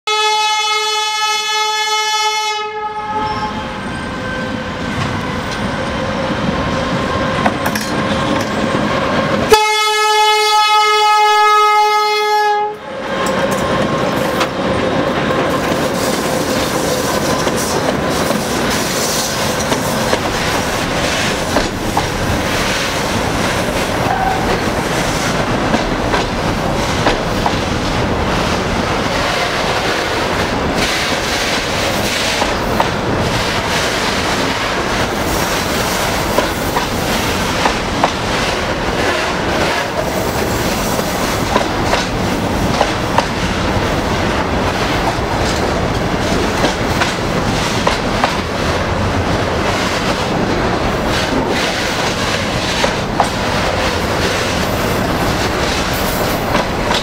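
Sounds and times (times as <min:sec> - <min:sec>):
locomotive horn blasts: 0:00.0 - 0:04.6, 0:09.5 - 0:12.9, 0:24.1 - 0:24.6
train wheels clattering over rail joints: 0:13.2 - 0:48.7, 0:49.6 - 0:57.0.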